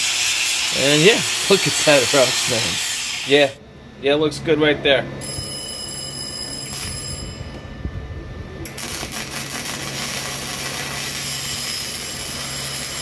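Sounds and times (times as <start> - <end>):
welding arc crackling: 0.0 - 3.6, 8.6 - 13.0.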